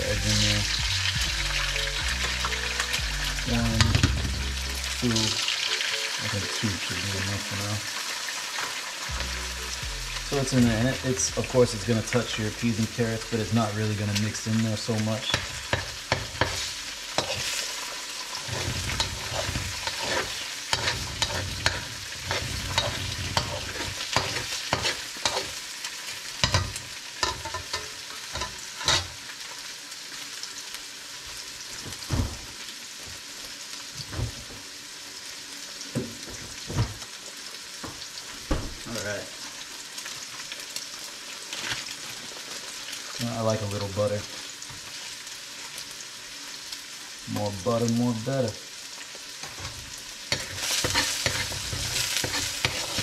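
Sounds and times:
eggs sizzling in oil: 0.0s - 53.0s
metal spoon scraping wok: 15.3s - 25.6s, 26.4s - 29.2s, 50.3s - 53.0s.

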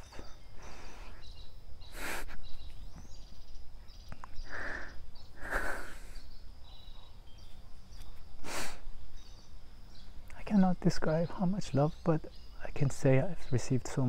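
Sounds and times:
man breathing heavily and sniffing: 0.0s - 3.2s, 4.1s - 6.4s, 8.4s - 9.0s
birds chirping: 0.0s - 14.0s
faint insects chirping: 0.0s - 14.0s.

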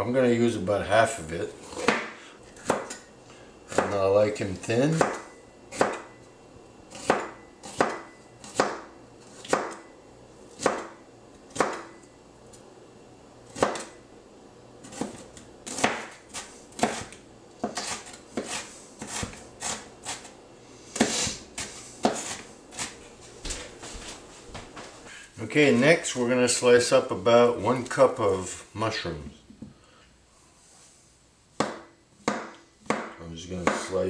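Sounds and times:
knife chopping on cutting board: 1.7s - 3.0s, 4.9s - 6.1s, 6.9s - 9.8s, 10.6s - 12.0s, 13.5s - 13.9s, 14.8s - 20.3s, 21.0s - 23.0s, 31.6s - 34.0s.

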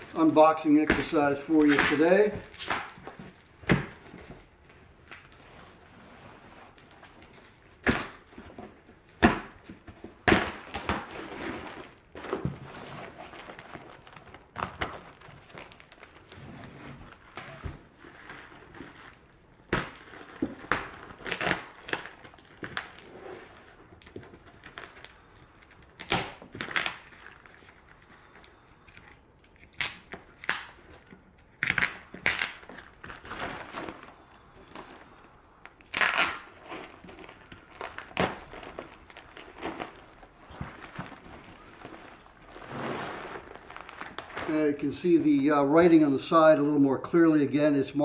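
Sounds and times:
plastic wrap crinkling and tearing: 0.0s - 45.4s.

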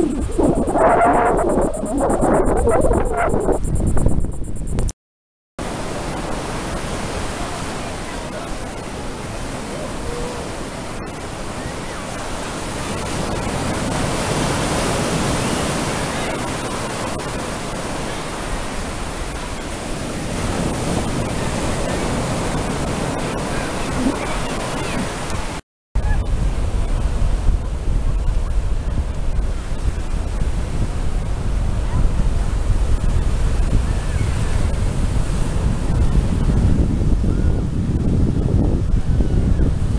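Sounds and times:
ocean surf breaking: 5.6s - 25.6s.

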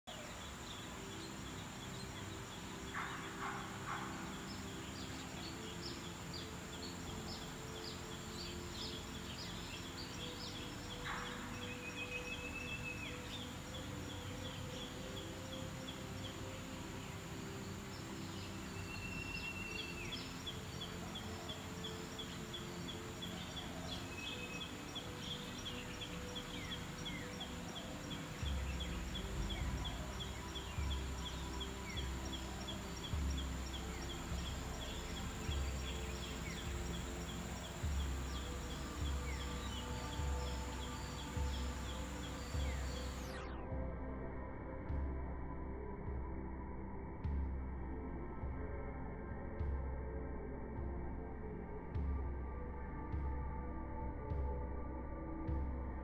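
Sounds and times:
small birds chirping: 0.0s - 43.5s.

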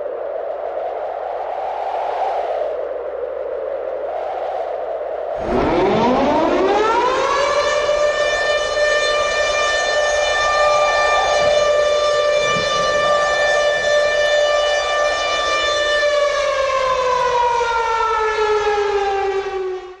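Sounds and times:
siren wailing: 4.3s - 20.0s.

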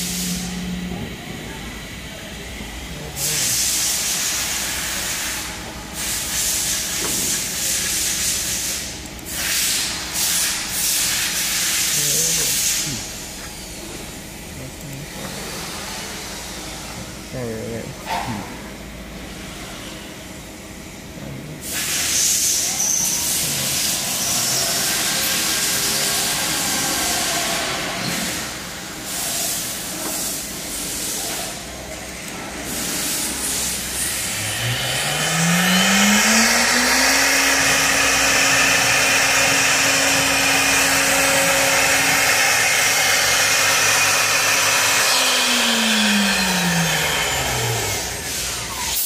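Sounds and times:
compressed air hissing: 0.0s - 0.9s, 3.0s - 13.2s, 32.6s - 49.0s
spindle motor whine: 0.0s - 49.0s.

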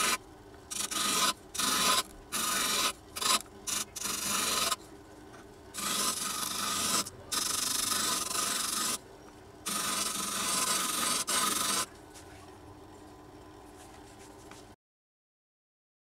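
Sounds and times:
wood rasping on sanding disc: 0.0s - 4.8s, 5.8s - 9.0s, 9.7s - 11.9s
disc sander humming: 0.0s - 12.3s.

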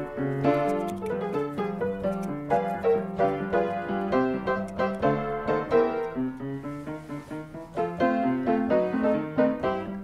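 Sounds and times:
piano music: 0.0s - 10.0s.

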